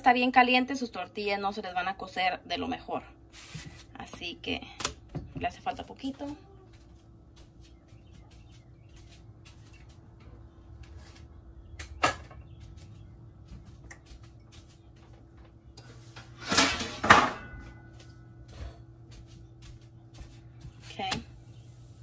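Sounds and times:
cookware clatter: 16.4 - 17.6.

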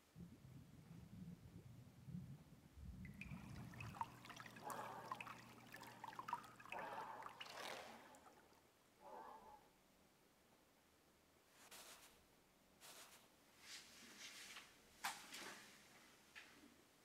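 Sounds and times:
water splashing and trickling: 3.0 - 8.7.

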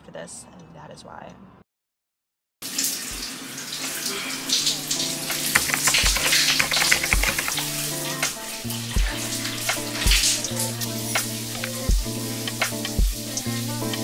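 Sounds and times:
shower water spraying: 2.6 - 14.0
kick drum hits: 9.0 - 9.2, 11.9 - 12.1.

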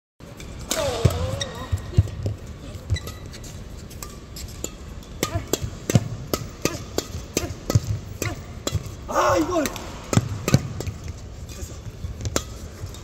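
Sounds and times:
badminton rackets hitting shuttlecock: 0.4 - 11.6, 12.2 - 13.0
shoes squeaking on court: 0.8 - 4.7.

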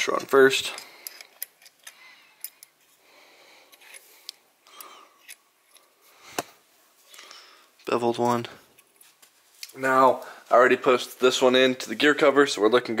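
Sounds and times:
metal washers clicking: 0.6 - 2.8.

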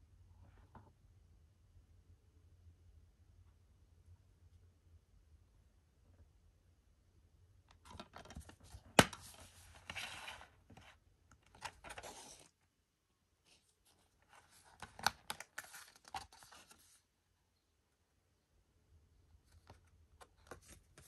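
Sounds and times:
packaging rustling and scraping: 11.5 - 12.5.

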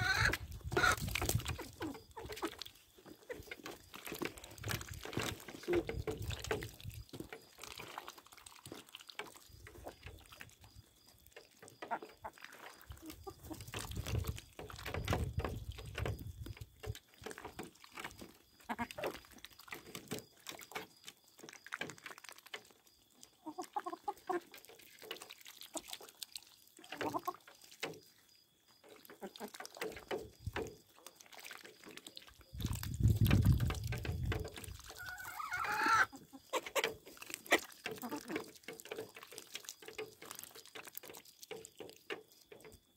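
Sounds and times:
chickens clucking: 0.0 - 10.7, 11.3 - 22.6, 23.2 - 28.1, 28.8 - 42.8
chicken high call: 35.0 - 36.6.

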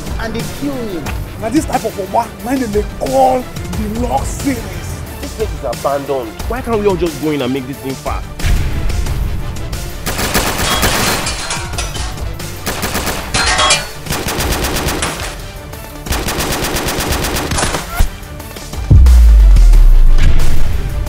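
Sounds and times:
loud deep boom: 8.4 - 9.5, 18.9 - 21.0
automatic gunfire bursts: 10.1 - 11.1, 12.6 - 13.4, 14.1 - 15.4, 16.1 - 18.0.

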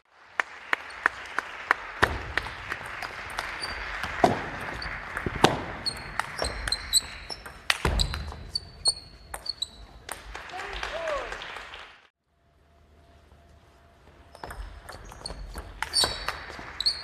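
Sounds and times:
shoes squeaking on wooden floor: 5.8 - 10.1, 14.2 - 17.0.

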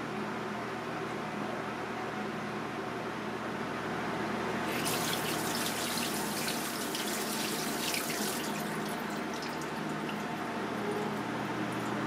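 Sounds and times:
tap water running: 4.7 - 12.0.

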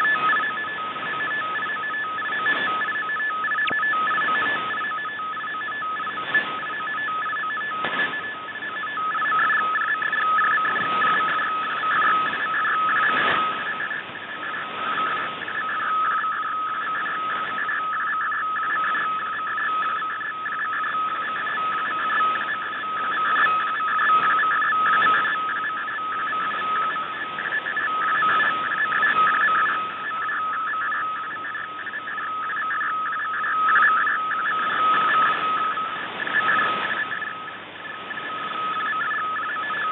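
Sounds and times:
bright edge tones: 0.0 - 39.9
shortwave hiss and static crackles: 0.0 - 39.9
warbling data signal: 0.0 - 39.9.

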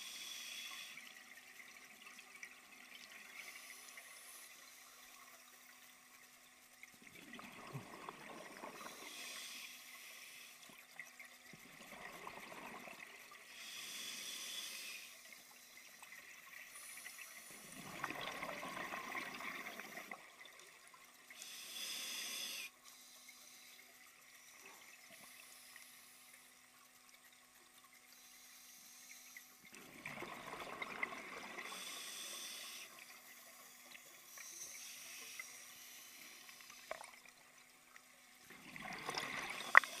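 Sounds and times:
regulator hissing inhalations: 0.0 - 1.1, 8.8 - 10.7, 13.5 - 15.7, 21.4 - 26.3, 31.6 - 37.0.

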